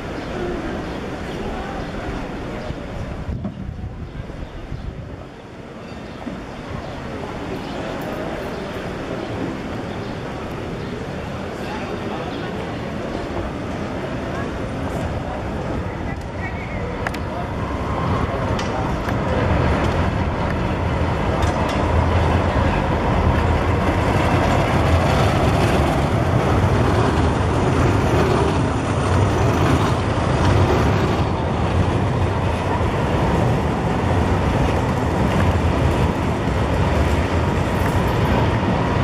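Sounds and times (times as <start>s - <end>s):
street noise: 0.0s - 39.0s
tram wheels rumbling on rails: 0.0s - 39.0s.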